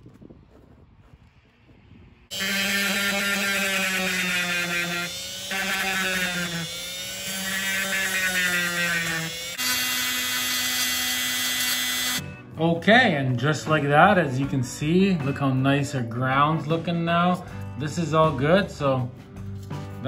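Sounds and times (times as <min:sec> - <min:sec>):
rotary tool grinding: 0:02.3 - 0:12.2.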